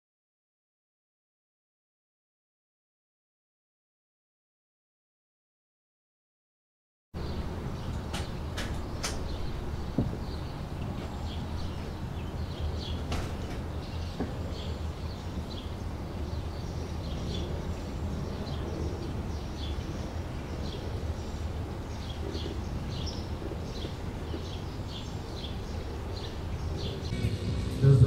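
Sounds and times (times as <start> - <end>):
small birds chirping: 7.2 - 28.0
steady low rumble: 26.8 - 28.0.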